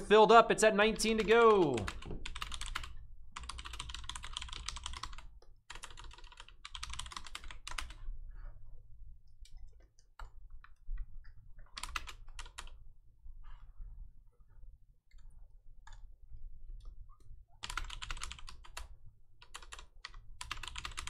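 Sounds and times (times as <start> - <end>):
typing on computer keyboard: 1.0 - 8.1, 11.6 - 12.8, 17.6 - 21.0.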